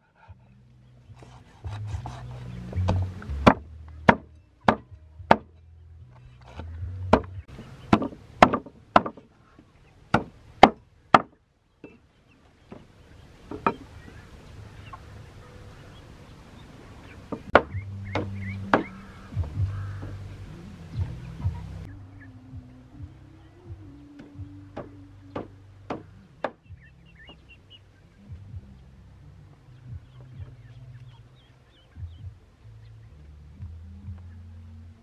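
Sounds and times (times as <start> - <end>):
cleaver chopping on wooden block: 1.2 - 5.5, 6.6 - 9.3, 10.1 - 11.4, 17.3 - 20.2, 24.2 - 26.6.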